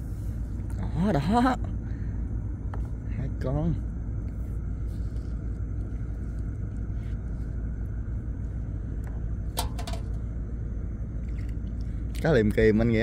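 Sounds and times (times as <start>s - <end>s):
steady low rumble: 0.0s - 13.0s
sharp clicks and rattles: 9.6s - 10.2s.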